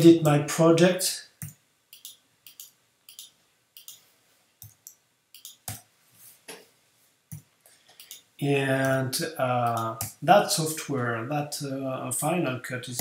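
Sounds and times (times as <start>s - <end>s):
mouse and keyboard clicks: 1.4s - 4.0s, 4.6s - 5.8s.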